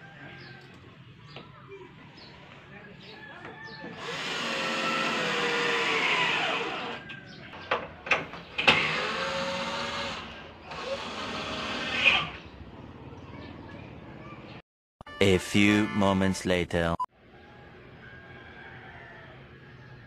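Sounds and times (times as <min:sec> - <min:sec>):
cordless drill driving screws: 0:04.0 - 0:07.0, 0:08.6 - 0:12.4.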